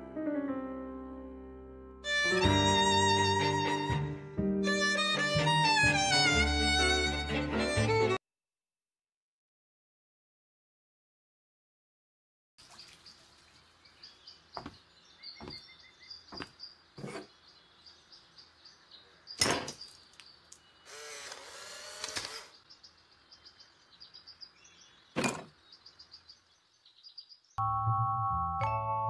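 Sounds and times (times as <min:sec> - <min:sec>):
sharp knocks: 0:15.4 - 0:15.6, 0:25.2 - 0:25.6
scraping creaking sound: 0:16.4 - 0:17.3.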